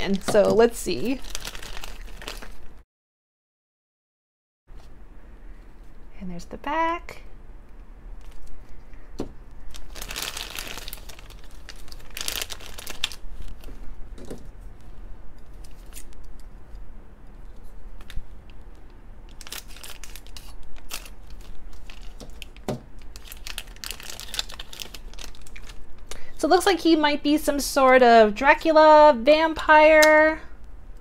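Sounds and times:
plastic bag crinkling: 0:00.0 - 0:02.8, 0:09.6 - 0:14.4, 0:19.3 - 0:26.1.

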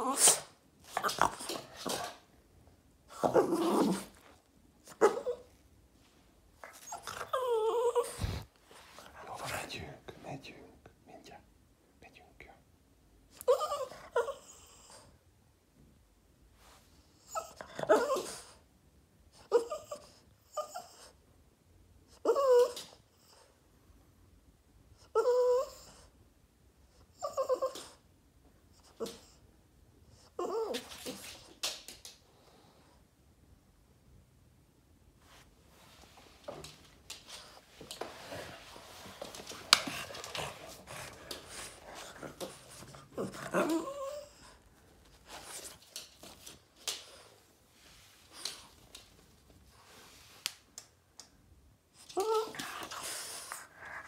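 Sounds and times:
dog whining: 0:00.0 - 0:02.2, 0:03.1 - 0:04.2, 0:04.8 - 0:05.6, 0:06.6 - 0:08.5, 0:13.3 - 0:15.0, 0:17.2 - 0:18.6, 0:19.4 - 0:21.1, 0:22.1 - 0:23.4, 0:25.0 - 0:26.1, 0:27.1 - 0:28.0, 0:30.2 - 0:31.4, 0:39.2 - 0:44.6, 0:52.0 - 0:54.0.

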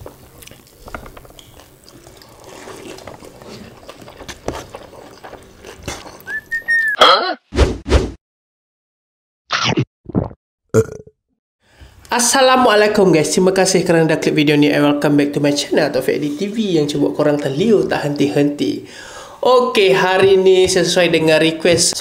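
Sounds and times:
faint eating sounds: 0:00.0 - 0:06.7
short rising and falling whistle: 0:06.3 - 0:07.0.

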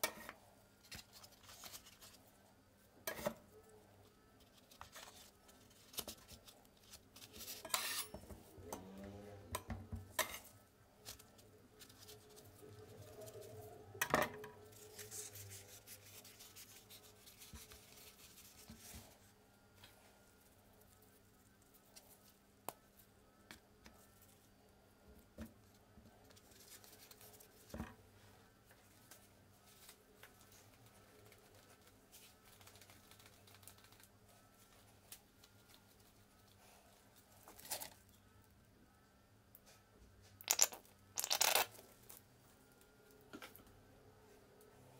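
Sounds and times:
faint low hum: 0:00.0 - 0:44.9
gloves crinkling against cup: 0:28.7 - 0:38.1, 0:40.4 - 0:42.2.

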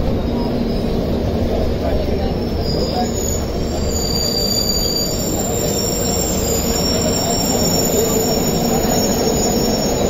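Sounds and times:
train wheels rumbling on track: 0:00.0 - 0:10.0
high-pitched wheel squeal: 0:02.3 - 0:10.0.

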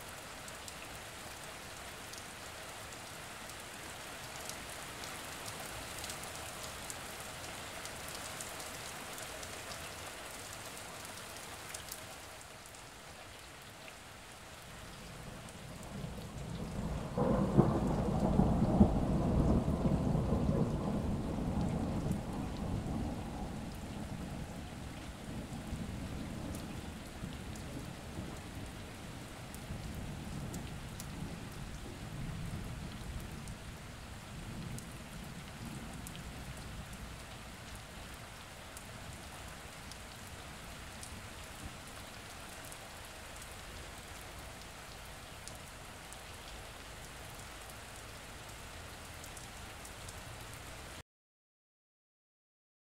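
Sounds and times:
rain falling: 0:00.0 - 0:51.0
thunder rumbling: 0:15.7 - 0:28.3.

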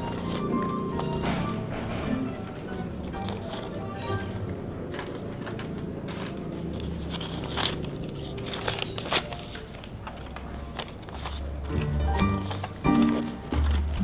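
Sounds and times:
newspaper rustling: 0:00.0 - 0:14.0
plastic containers crinkling: 0:04.9 - 0:14.0.

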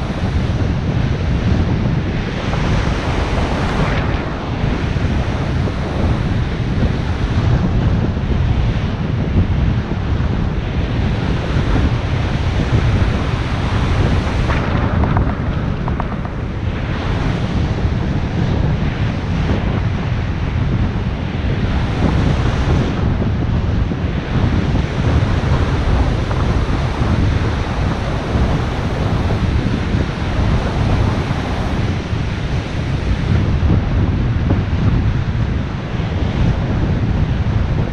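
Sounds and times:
sea surf breaking: 0:00.0 - 0:37.9
wind buffeting microphone: 0:00.0 - 0:37.9.

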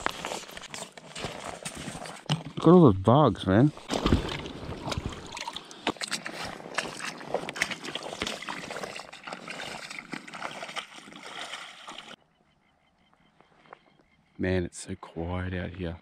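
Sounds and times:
splashing steps in shallow water: 0:03.8 - 0:12.2.

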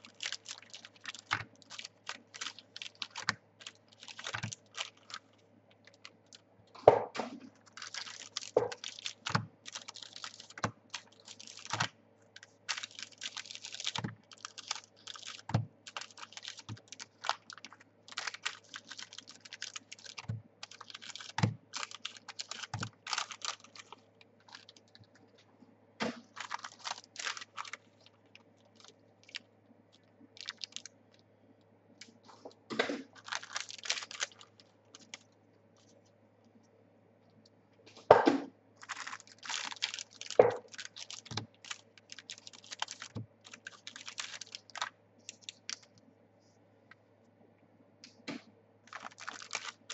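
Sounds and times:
cards clicking and rustling: 0:00.0 - 0:06.1, 0:07.7 - 0:25.0, 0:48.3 - 0:49.9.

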